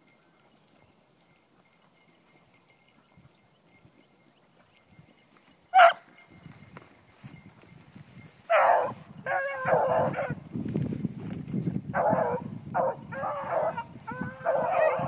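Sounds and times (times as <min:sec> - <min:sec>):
dogs baying: 0:05.7 - 0:06.0, 0:08.5 - 0:10.4, 0:11.9 - 0:15.0
dog yelping: 0:08.5 - 0:10.3, 0:12.0 - 0:15.0.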